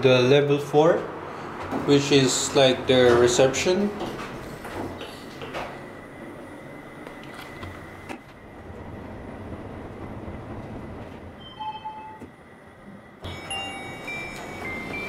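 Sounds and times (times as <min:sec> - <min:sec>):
lift car rumbling: 0:00.0 - 0:15.0
brief lift tone: 0:10.9 - 0:12.5, 0:13.2 - 0:15.0.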